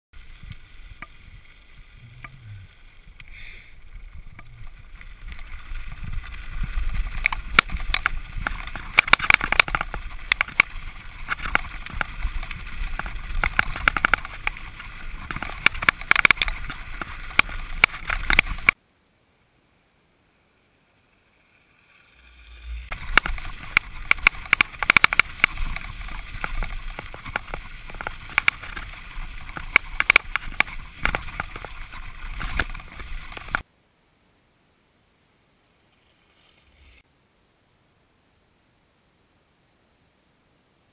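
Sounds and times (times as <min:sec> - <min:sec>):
bike tyres on dirt and stones: 0:00.2 - 0:18.8, 0:20.7 - 0:33.7, 0:35.8 - 0:37.0
wind on microphone: 0:00.4 - 0:18.8
bike rattling over bumps: 0:03.8 - 0:18.8, 0:21.7 - 0:33.6.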